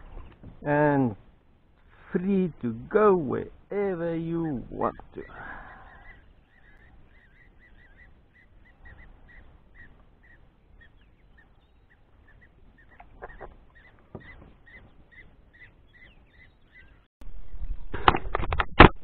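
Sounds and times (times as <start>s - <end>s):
bird calling short notes: 4.3s - 17.1s.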